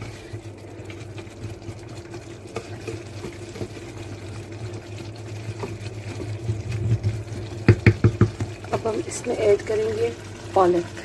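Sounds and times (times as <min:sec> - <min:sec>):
food bubbling and sizzling in a pot: 0:00.0 - 0:11.0
wooden spoon knocking a pot: 0:05.6 - 0:08.6.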